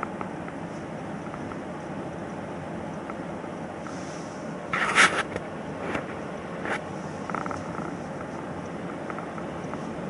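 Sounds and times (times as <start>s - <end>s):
car road and engine noise: 0.0s - 10.0s
brief rustling scrape: 3.9s - 7.2s.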